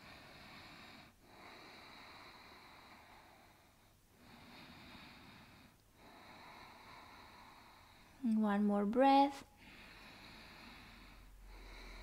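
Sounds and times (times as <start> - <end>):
slow hissing breathing: 0.0 - 8.2, 9.5 - 12.0.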